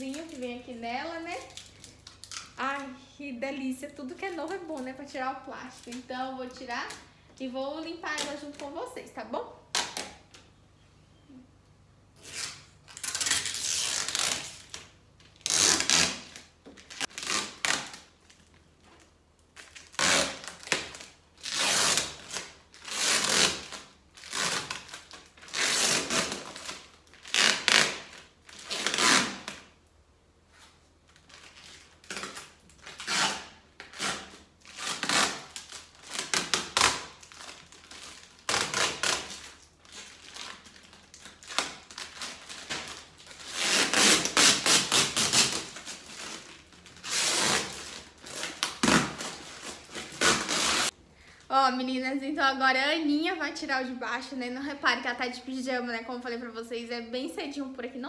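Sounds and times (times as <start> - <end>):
plastic film crinkling: 0.0 - 3.0, 3.9 - 9.0, 12.2 - 29.8, 30.5 - 51.0.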